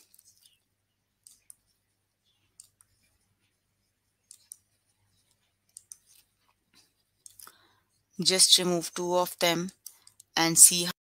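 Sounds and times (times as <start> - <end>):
faint computer mouse clicks: 2.5 - 3.0, 4.2 - 4.7, 5.7 - 6.3.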